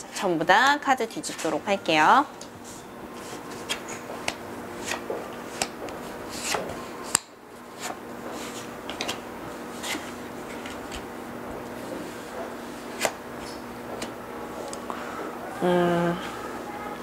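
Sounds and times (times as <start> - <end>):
faint steady hum: 0.0 - 17.0
cards flicking and tapping: 3.6 - 7.9.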